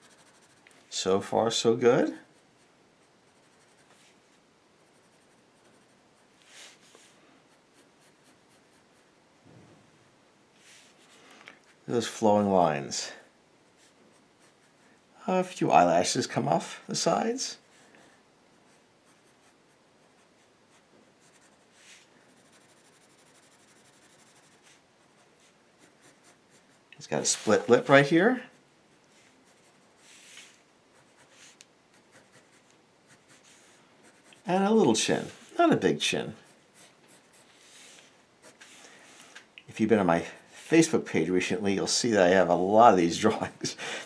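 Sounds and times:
pencil scratching on paper: 0:00.0 - 0:00.8, 0:02.2 - 0:06.8, 0:07.5 - 0:09.1, 0:13.7 - 0:14.9, 0:18.6 - 0:27.9, 0:28.5 - 0:34.6, 0:36.4 - 0:38.8.

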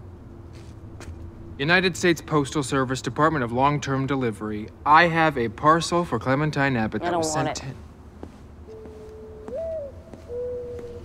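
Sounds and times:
bird cooing: 0:08.7 - 0:11.0.

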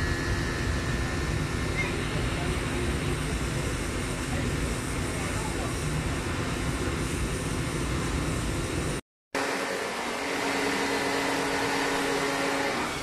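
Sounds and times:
motor hum with tones: 0:00.0 - 0:13.0
pressure washer spray hissing: 0:09.6 - 0:13.0.

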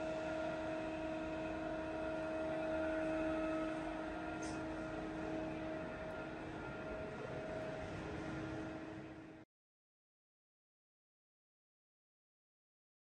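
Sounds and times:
lathe machine hum: 0:00.0 - 0:09.4.

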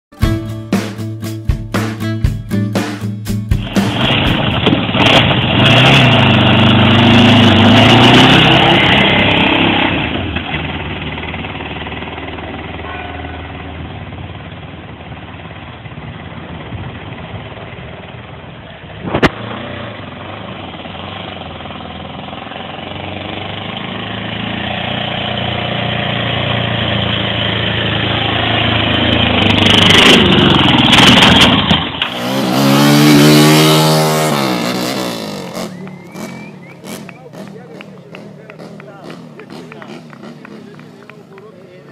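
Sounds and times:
motorcycle exhaust: 0:03.7 - 0:41.7.

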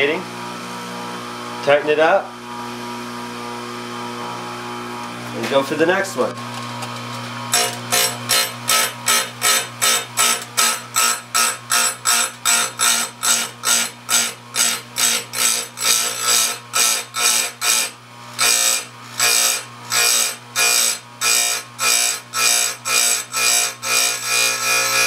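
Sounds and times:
grinder motor humming: 0:02.5 - 0:25.0
grinding wheel rasping on chain: 0:07.5 - 0:25.0.

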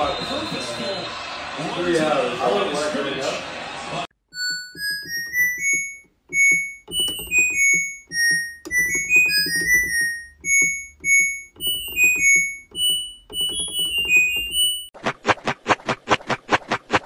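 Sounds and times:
synthesizer melody over pulsing beat: 0:04.4 - 0:14.9.

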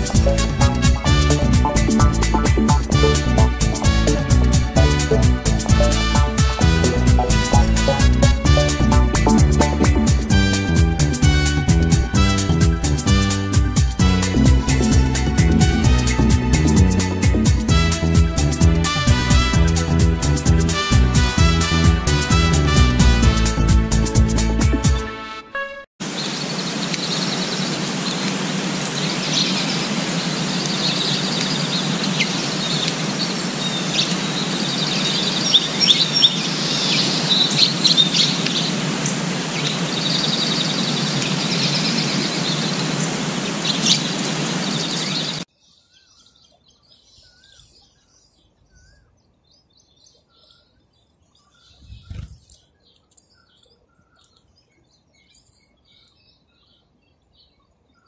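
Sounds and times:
outdoor background noise: 0:26.0 - 0:58.0
small birds chirping and trilling: 0:26.0 - 0:58.0.

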